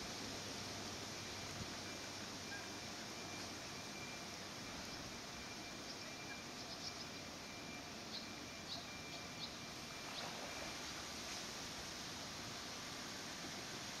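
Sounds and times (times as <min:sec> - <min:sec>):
faint outdoor background noise: 0:00.0 - 0:14.0
faint thin steady tone: 0:00.0 - 0:14.0.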